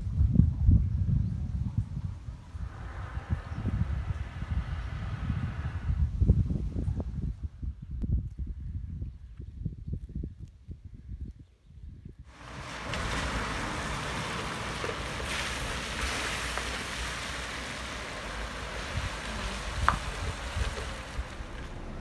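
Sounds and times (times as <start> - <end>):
wind thumps on microphone: 0.0 - 22.0
tyres hissing on wet road: 2.6 - 6.0, 12.3 - 22.0.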